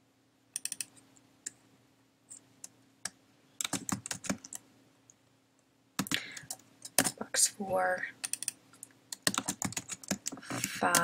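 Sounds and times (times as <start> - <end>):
keyboard typing clicks: 0.6 - 1.0, 3.0 - 4.6, 6.0 - 7.2, 8.2 - 11.0.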